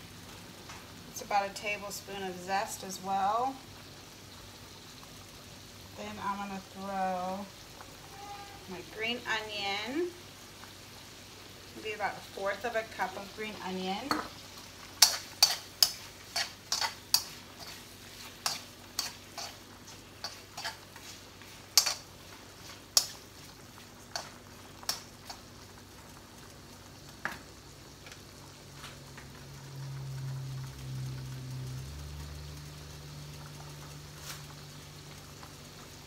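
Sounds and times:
shrimp sizzling in butter: 0.0s - 36.0s
metal tongs clacking against wok: 15.0s - 17.8s, 18.4s - 19.6s, 20.2s - 20.8s, 21.7s - 22.1s, 23.0s - 23.2s, 24.1s - 25.4s.

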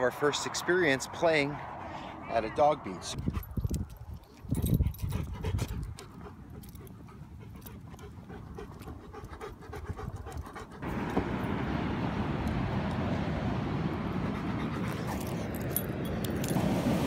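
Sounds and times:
dog panting: 4.4s - 10.8s.

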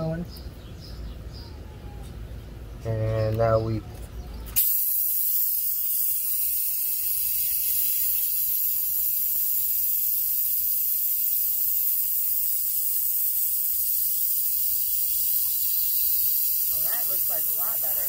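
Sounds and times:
compressed air hissing: 4.6s - 18.0s.

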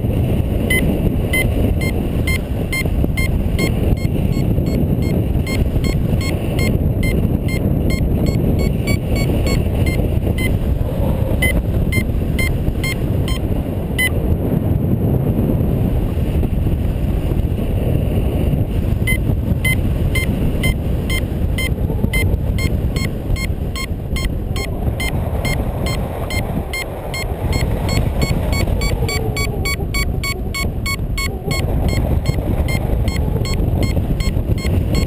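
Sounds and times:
wind buffeting microphone: 0.0s - 35.0s
variometer short beeps: 0.7s - 10.6s, 11.4s - 14.2s, 19.0s - 35.0s.

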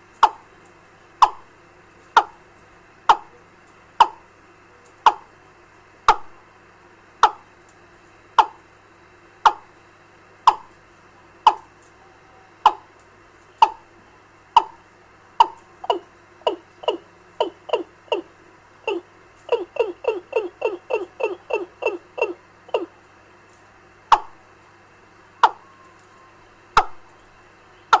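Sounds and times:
bird call through loudspeaker: 15.4s - 18.3s, 18.9s - 23.0s, 25.4s - 28.0s.

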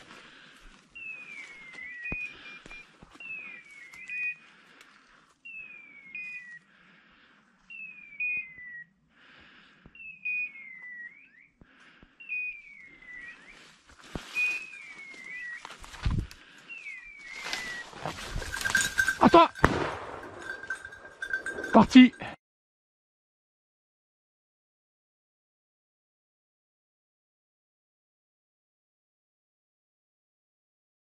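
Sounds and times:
brush rustling: 13.4s - 21.8s.

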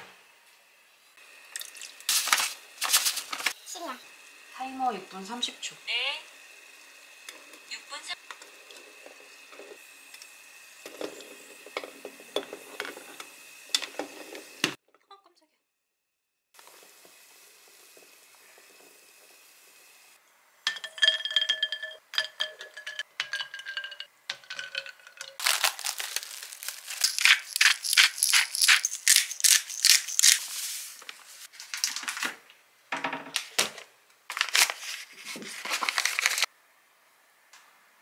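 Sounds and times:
paper bag crinkling: 2.1s - 3.5s, 25.4s - 31.0s, 34.3s - 36.5s
rapid crinkling and rustling: 2.1s - 3.6s, 25.4s - 32.4s, 34.3s - 36.5s.

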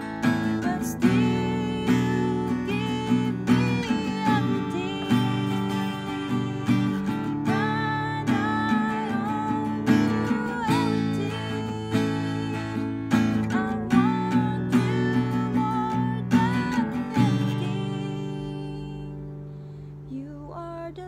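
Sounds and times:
acoustic guitar strumming: 0.0s - 21.0s
person singing softly: 0.0s - 21.0s.

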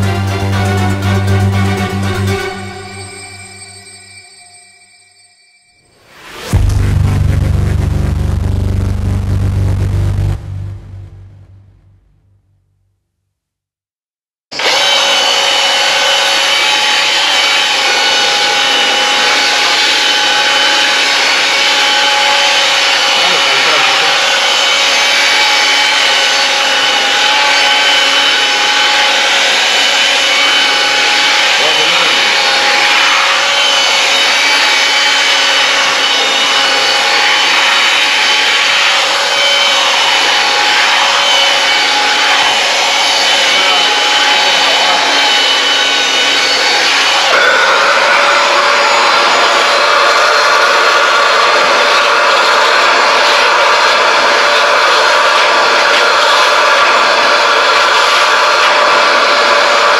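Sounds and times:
electric motor whining: 14.5s - 59.9s.

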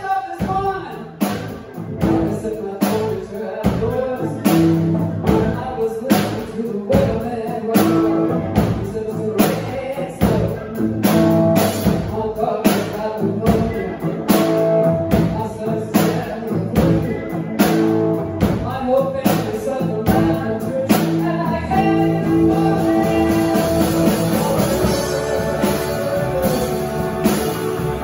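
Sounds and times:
bass guitar: 0.0s - 28.0s
drum kit: 0.0s - 28.0s
keyboard: 0.0s - 28.0s
woman singing: 19.0s - 28.0s
electric guitar: 19.2s - 28.0s.

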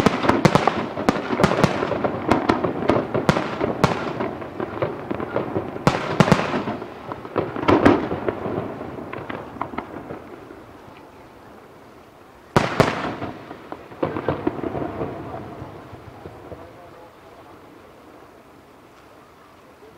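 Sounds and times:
firework shells bursting: 0.0s - 10.8s, 12.5s - 16.8s
firework crackle: 0.0s - 19.9s.

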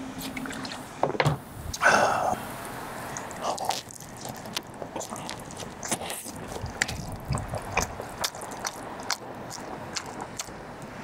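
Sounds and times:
chewing noodles with wet mouth clicks: 3.2s - 10.6s.

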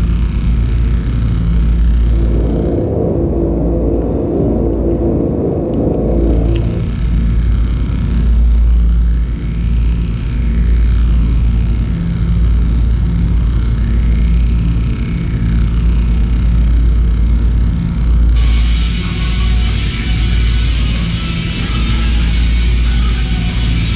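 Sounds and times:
deep rumbling drone: 0.0s - 23.9s
faint gliding high tones: 1.9s - 7.2s.

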